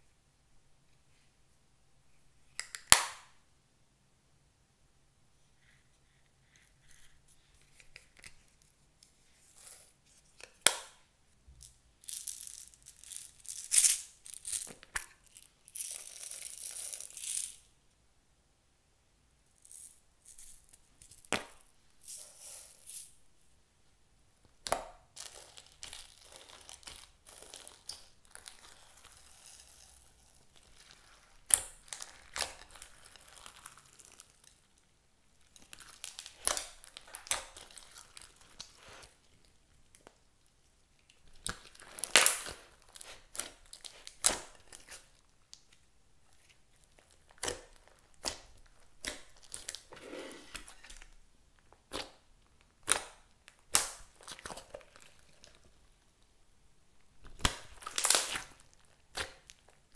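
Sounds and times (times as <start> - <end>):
sharp slime pop: 2.6 - 3.3, 52.8 - 54.1
slime squeezed with sticky crackles: 41.4 - 45.1, 57.3 - 59.9.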